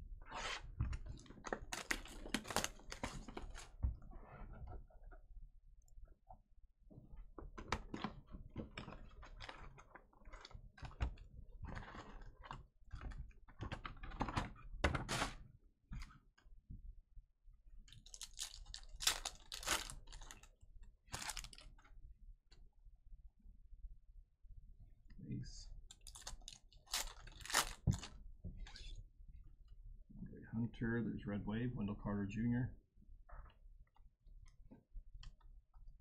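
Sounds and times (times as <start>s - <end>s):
foil wrapper crinkling: 1.4s - 3.6s, 18.0s - 20.5s, 21.1s - 21.7s, 26.0s - 28.1s.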